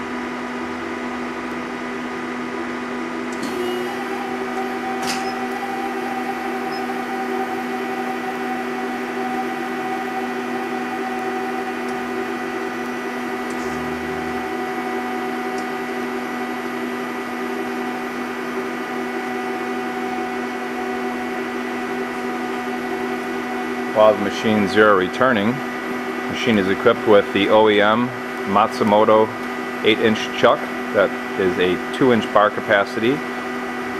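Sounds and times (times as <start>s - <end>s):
machine hum with held tones: 0.0s - 33.9s.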